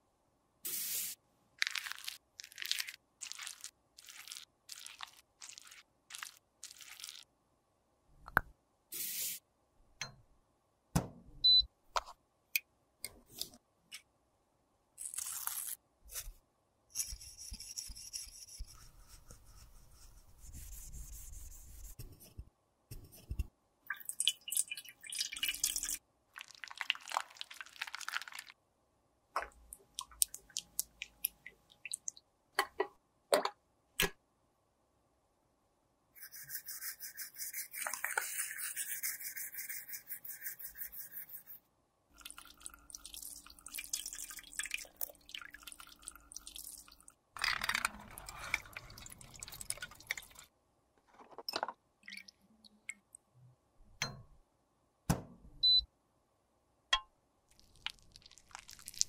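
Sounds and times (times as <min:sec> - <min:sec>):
craft knife scraping tissue: 0:17.0 - 0:22.4, 0:36.2 - 0:41.6.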